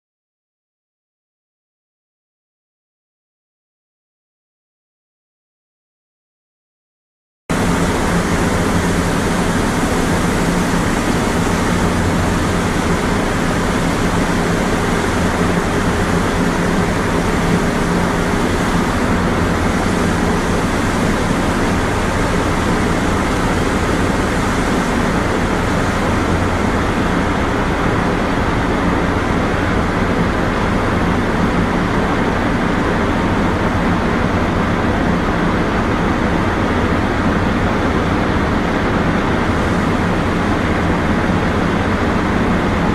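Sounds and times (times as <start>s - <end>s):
low machine hum: 7.5s - 42.9s.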